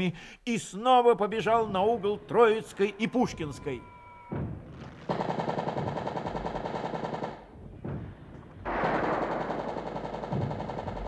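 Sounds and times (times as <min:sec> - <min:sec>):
machine-gun fire: 0:05.0 - 0:07.5, 0:08.6 - 0:11.0.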